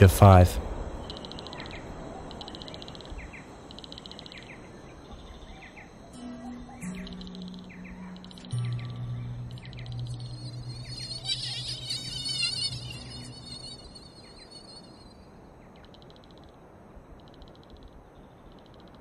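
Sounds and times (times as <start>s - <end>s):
low steady hum: 0.0s - 15.7s
insect chirping trills: 0.0s - 19.0s
warbling high chirps: 6.1s - 15.4s.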